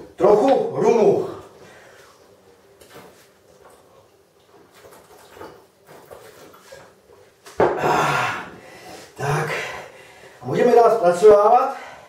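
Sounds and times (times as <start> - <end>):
loud breathy vocal sound: 7.8 - 10.2.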